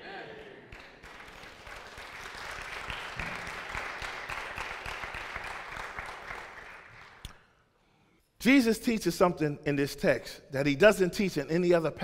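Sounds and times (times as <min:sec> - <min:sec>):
congregation applauding: 0:00.4 - 0:07.4.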